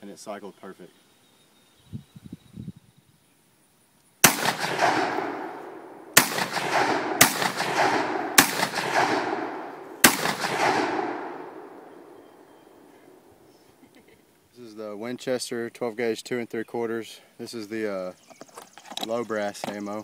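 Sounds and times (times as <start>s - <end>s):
rolling echo of gunshots: 4.2s - 12.4s
shotgun blasts: 4.2s - 12.9s.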